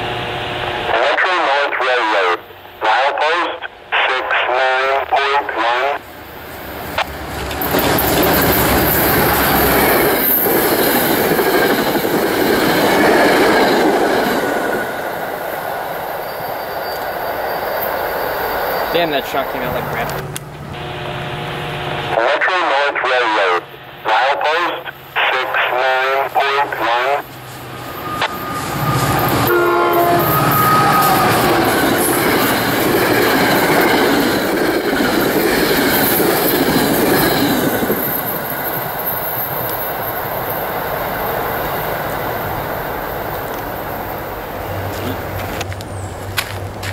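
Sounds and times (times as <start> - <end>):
train wheels rumbling on rails: 6.2 - 21.6, 27.2 - 46.9
train horn blast: 20.7 - 22.2, 27.9 - 32.1.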